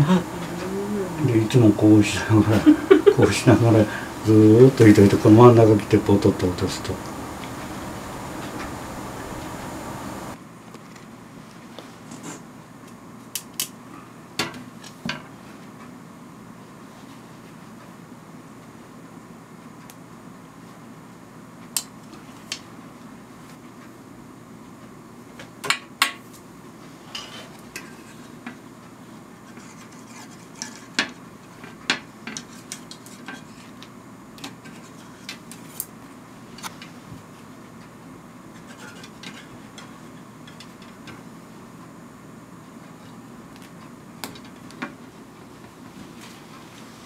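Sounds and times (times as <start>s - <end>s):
low hum: 0.0s - 10.4s.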